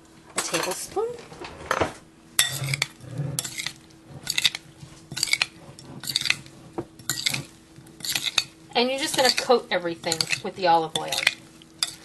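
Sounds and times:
spoon scraping glass bowl: 2.4 - 12.0.

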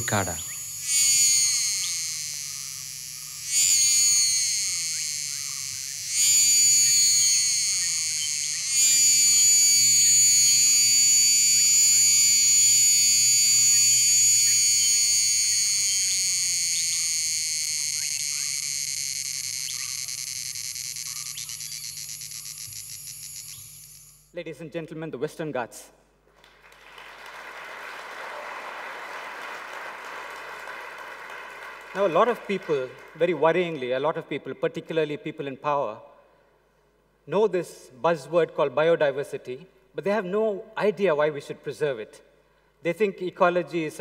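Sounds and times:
cicada buzzing calls: 0.0 - 24.4.

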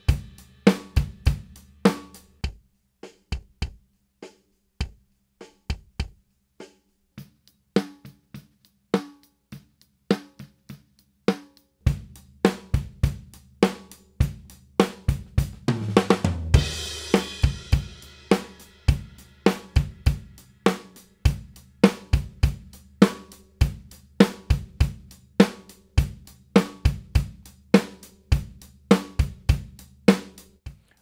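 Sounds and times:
drum kit groove: 0.0 - 31.0
kick drum: 2.4 - 2.7, 3.3 - 3.8, 4.8 - 5.0, 5.7 - 6.2
drum fill: 11.9 - 31.0.

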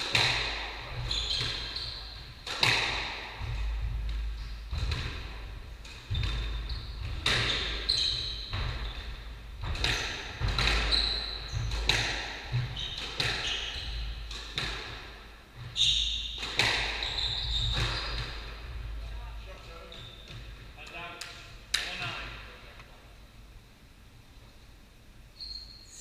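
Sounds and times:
shoes squeaking on wooden floor: 0.9 - 2.8, 6.0 - 14.3, 15.6 - 20.7
squash ball cracking off rackets: 2.4 - 3.6, 11.6 - 13.6.

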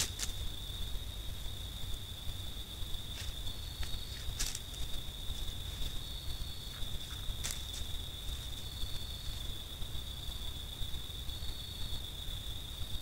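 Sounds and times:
dry leaves crackling: 0.0 - 0.6, 3.1 - 9.5
faint hiss: 0.0 - 13.0
high-pitched insect trill: 0.0 - 13.0
higher insect trill: 0.0 - 13.0.

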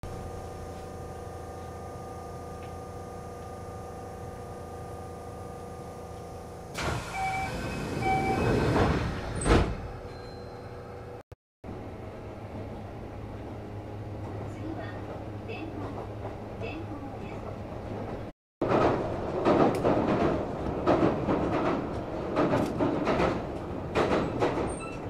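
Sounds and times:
train electrical hum: 0.0 - 25.0
door gear rushing noise: 6.7 - 10.2
doors shutting thump: 8.5 - 10.1.

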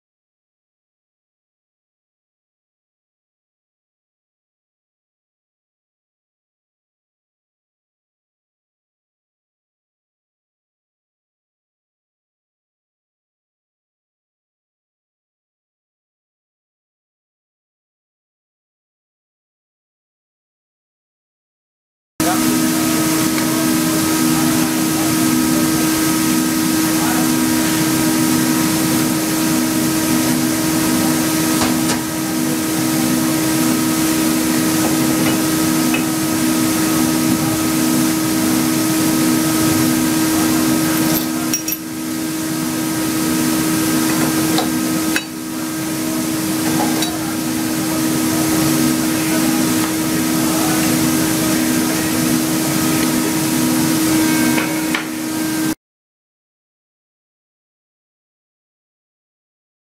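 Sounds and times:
workshop machinery running: 22.2 - 55.8.

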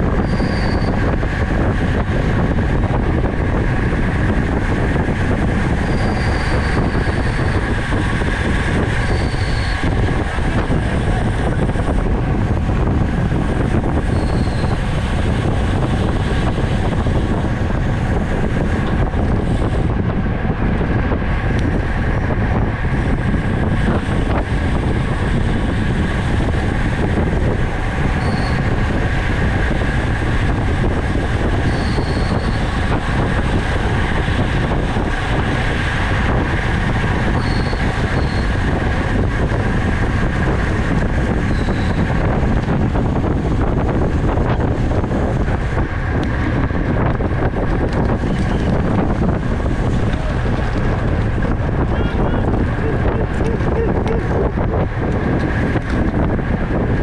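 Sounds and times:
tyre and drivetrain hum: 0.0 - 57.0
wind buffeting microphone: 0.0 - 57.0
short high squeaks: 0.2 - 0.9, 5.8 - 7.4, 9.0 - 9.8, 28.2 - 28.6, 31.7 - 32.6, 37.4 - 38.5.

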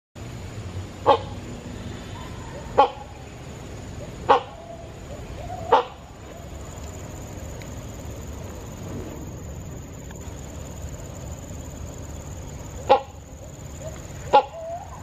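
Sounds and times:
hornbill barking calls: 1.0 - 6.8, 12.5 - 15.0.

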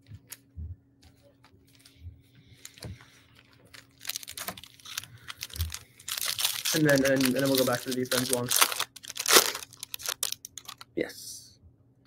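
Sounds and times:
foil wrapper crinkling and tearing: 3.4 - 10.9.

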